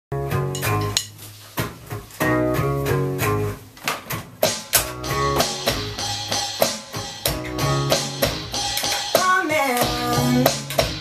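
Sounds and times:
sharp percussive hits: 4.4s - 11.0s
electric guitar chord riff: 4.9s - 11.0s.

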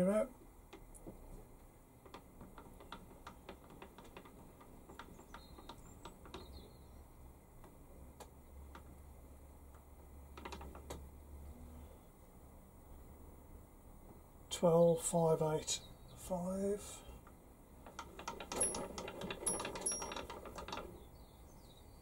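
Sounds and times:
faint low hum: 0.0s - 22.0s
lathe handwheels clicking: 2.0s - 6.7s, 17.8s - 21.0s.

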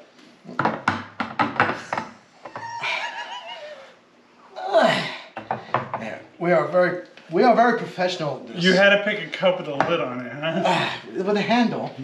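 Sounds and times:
person laughing: 2.6s - 4.0s.

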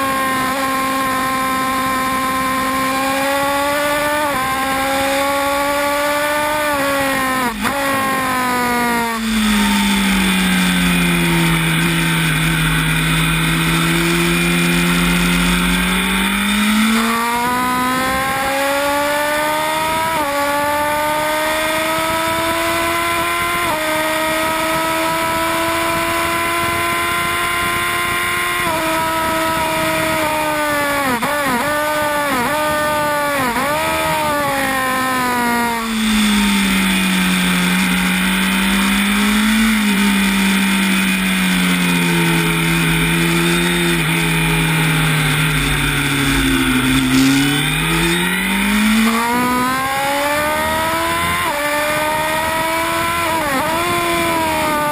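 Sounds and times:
motorcycle engine at full pace: 0.0s - 54.9s.

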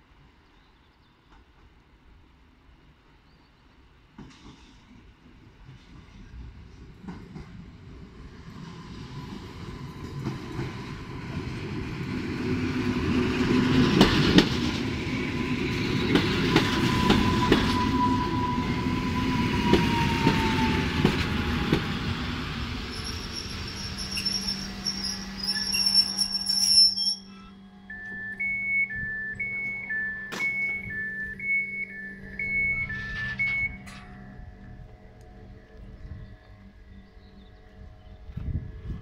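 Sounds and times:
train rumble: 3.9s - 39.0s
train whine falling in pitch: 13.0s - 35.5s
high broken tone: 22.9s - 35.6s.

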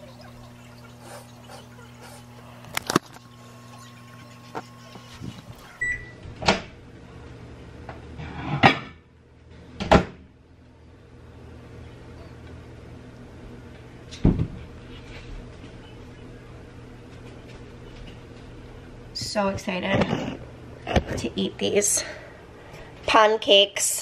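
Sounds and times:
steady low hum: 0.0s - 8.3s.

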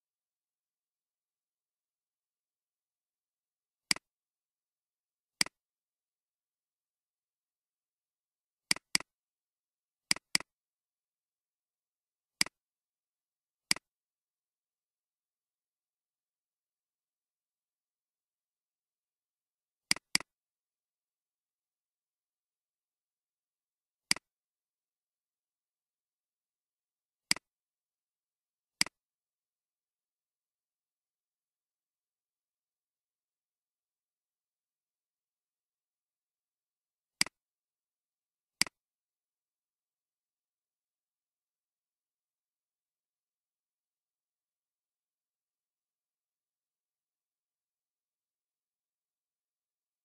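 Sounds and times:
computer mouse clicking: 10.1s - 10.5s, 13.7s - 13.9s, 19.9s - 20.3s.

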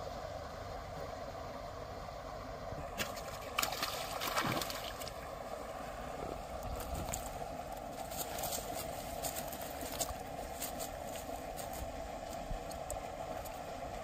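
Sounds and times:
fish splashing in water: 2.9s - 5.4s.

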